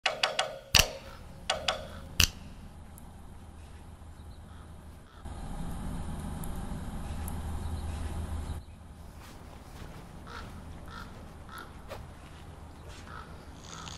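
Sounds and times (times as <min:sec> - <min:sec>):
sharp ticks: 0:00.0 - 0:03.1
steady low rumble: 0:00.8 - 0:13.6.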